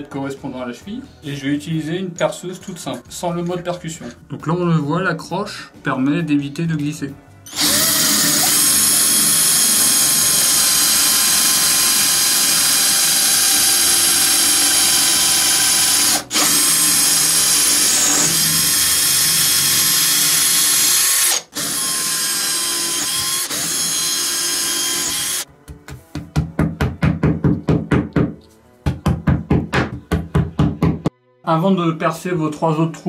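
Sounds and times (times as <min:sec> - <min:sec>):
electric drill boring into tile: 0:07.5 - 0:25.4.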